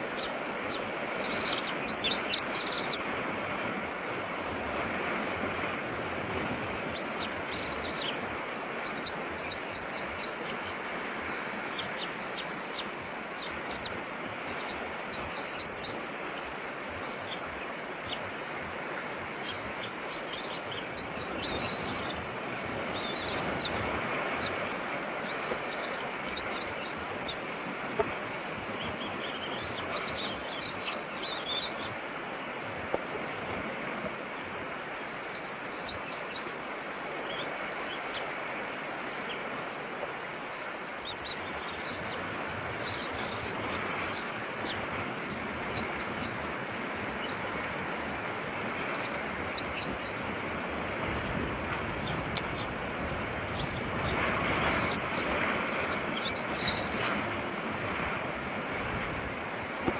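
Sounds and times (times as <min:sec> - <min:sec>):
surf: 0:00.0 - 0:59.9
wind: 0:00.0 - 0:59.9.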